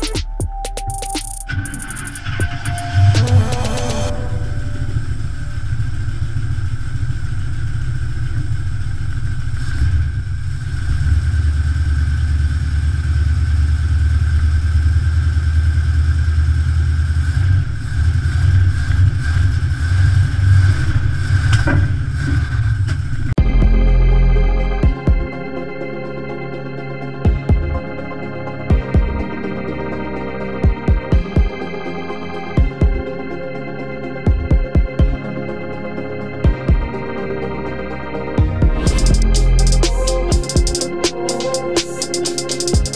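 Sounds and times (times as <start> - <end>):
engine idling and revving: 5.1 - 25.3, 38.4 - 42.9.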